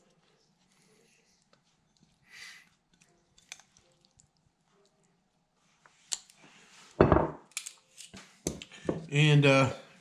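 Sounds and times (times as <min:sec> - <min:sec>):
tongs clicking against bowl: 0:02.9 - 0:03.8.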